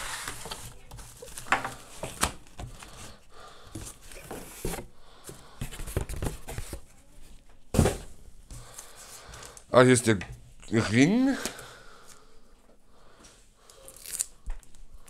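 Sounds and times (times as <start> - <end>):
packaging rustling and crinkling: 0.0 - 4.8.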